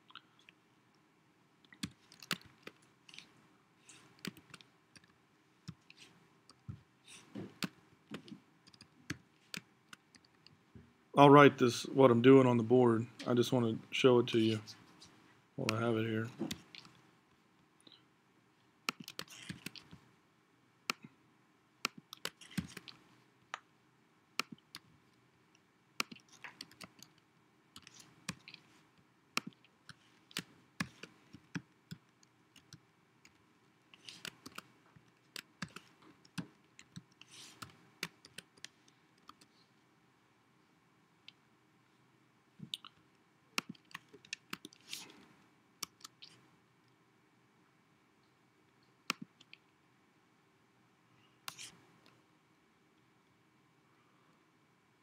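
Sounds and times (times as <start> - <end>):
keyboard typing: 1.8 - 3.3, 18.9 - 20.0, 21.8 - 23.0, 26.0 - 27.2, 34.0 - 39.5.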